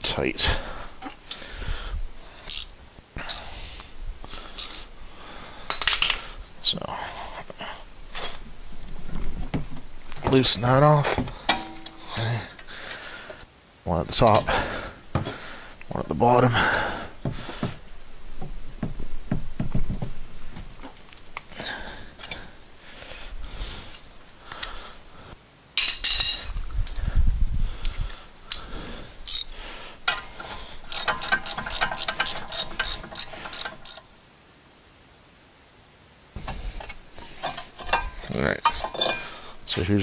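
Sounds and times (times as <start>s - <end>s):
socket wrench ratcheting: 2.5s - 2.7s, 29.3s - 29.5s, 30.8s - 34.1s
metal clinks and knocks: 5.7s - 6.3s, 11.3s - 12.4s, 25.8s - 27.1s, 29.3s - 34.1s, 36.4s - 39.6s.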